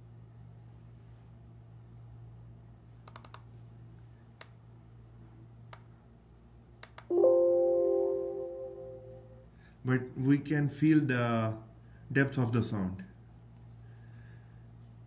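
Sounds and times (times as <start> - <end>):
laptop keys clicking: 3.0 - 3.6, 6.8 - 7.1
computer chime: 7.1 - 9.4.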